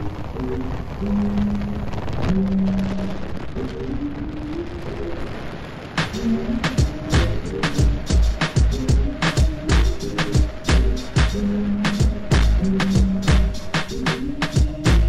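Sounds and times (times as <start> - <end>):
background music: 6.0 - 15.0.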